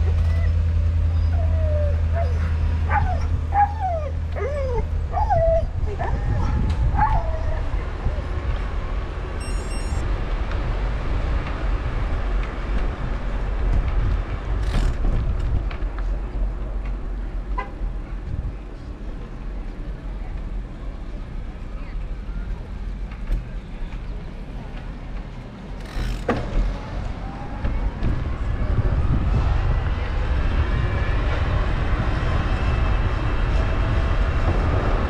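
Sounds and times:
vehicle rumble: 0.0 - 35.0
dog whining and yipping: 0.1 - 7.8.

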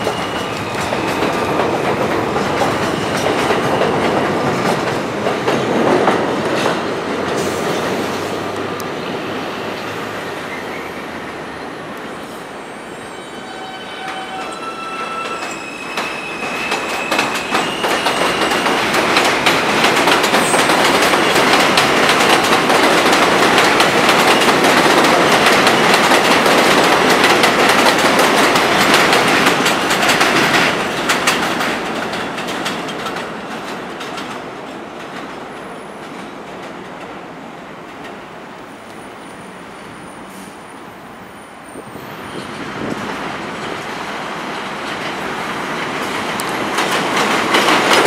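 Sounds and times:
train wheels clacking over rail joints: 0.0 - 8.3, 15.2 - 35.4, 42.4 - 48.0.

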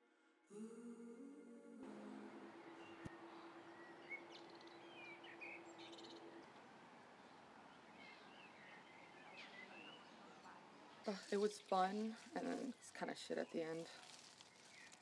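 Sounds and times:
low held tone: 0.5 - 6.5
birds chirping faintly: 2.5 - 15.0.

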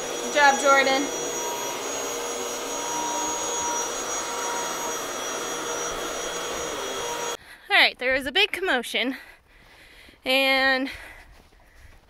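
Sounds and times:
vacuum cleaner running on carpet: 0.0 - 7.4.

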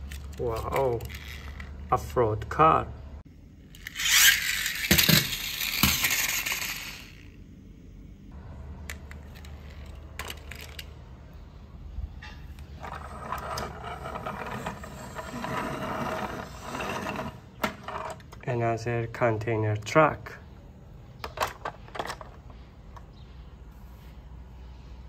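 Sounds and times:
plastic toy vehicles clattering: 0.0 - 1.7, 3.8 - 7.3, 8.8 - 11.0, 21.2 - 23.1
toy truck rattling on tile floor: 0.0 - 1.7, 3.8 - 7.3, 8.9 - 10.9, 12.8 - 18.3.

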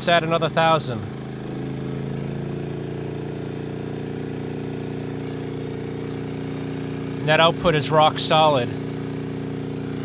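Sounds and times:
generator engine humming: 0.0 - 10.0.

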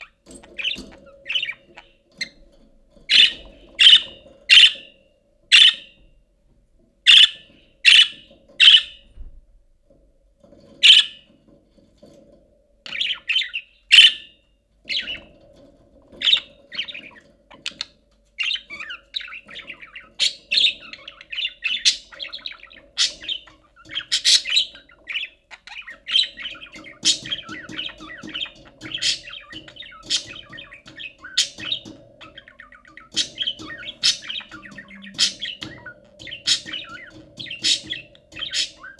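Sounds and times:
budgerigar chirping and warbling: 3.1 - 4.9, 5.5 - 6.0, 7.1 - 9.0, 10.8 - 11.2, 12.9 - 14.3, 18.4 - 38.9.

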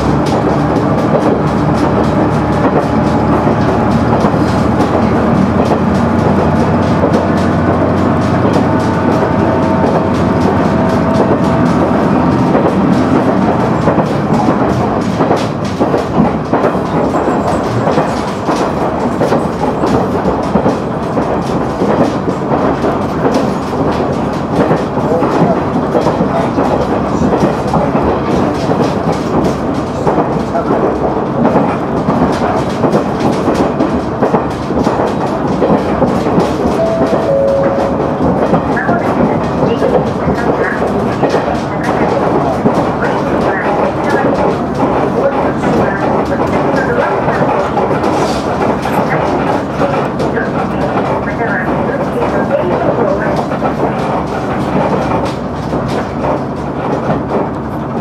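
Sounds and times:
wheel and track clatter: 0.0 - 58.0
diesel engine humming: 36.2 - 42.2.

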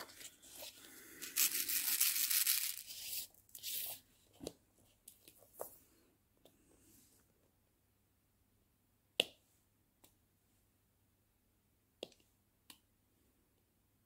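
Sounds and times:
card scraping across tablecloth: 0.0 - 4.0.

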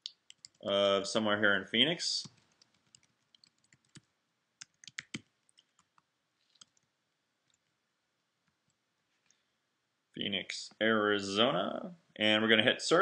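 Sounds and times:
computer keyboard keystrokes: 2.4 - 6.0.

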